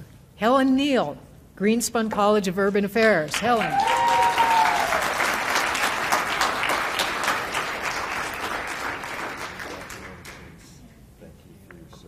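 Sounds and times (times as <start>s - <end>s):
audience applauding: 3.4s - 10.6s
person cheering: 3.5s - 5.2s.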